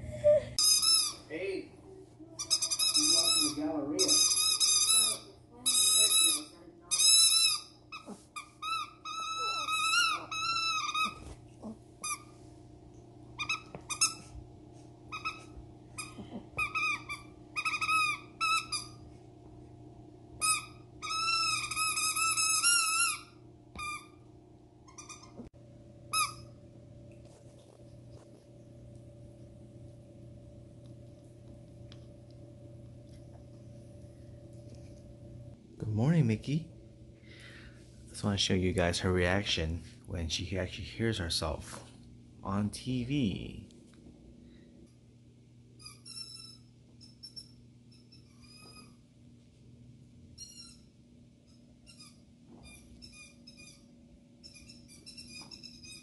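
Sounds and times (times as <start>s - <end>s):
faint steady hum: 0.0s - 56.0s
squeaky toy squeaking: 0.6s - 1.3s, 2.4s - 11.3s, 13.4s - 14.2s, 15.1s - 19.0s, 20.4s - 24.2s, 24.9s - 25.4s, 45.8s - 48.9s, 50.4s - 50.9s, 54.4s - 56.0s.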